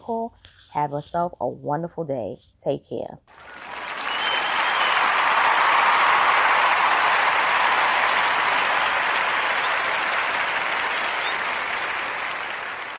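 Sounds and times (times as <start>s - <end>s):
crowd applauding: 3.3s - 12.9s.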